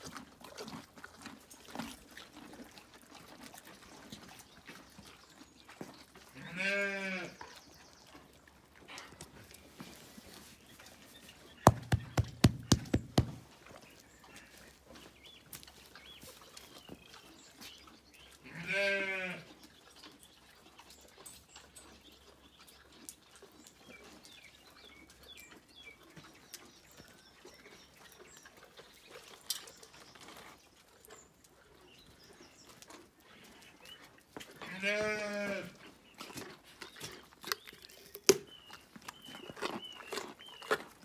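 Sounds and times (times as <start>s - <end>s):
sheep bleating: 6.4s - 7.4s, 18.5s - 19.4s, 34.7s - 35.8s
sharp knocks: 11.7s - 13.4s.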